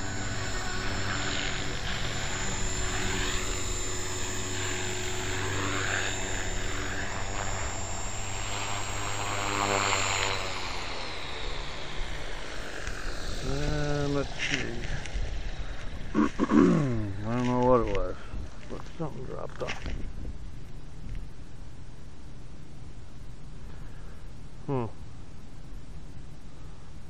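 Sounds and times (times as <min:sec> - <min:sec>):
rc helicopter motor whining: 0:00.0 - 0:18.8.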